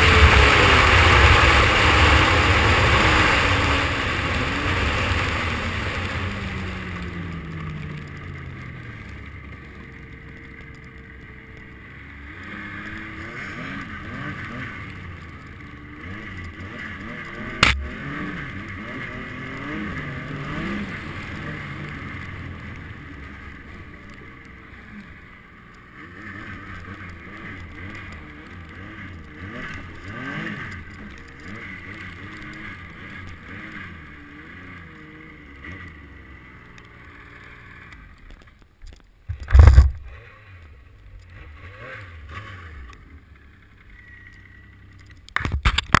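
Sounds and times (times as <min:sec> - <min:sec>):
snowmobile engine running: 0:00.0 - 0:38.2
loud thump: 0:17.6 - 0:18.0.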